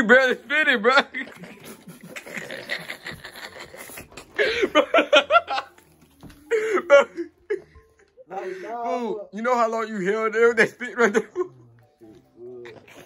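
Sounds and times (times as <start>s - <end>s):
young man laughing: 1.2s - 5.8s.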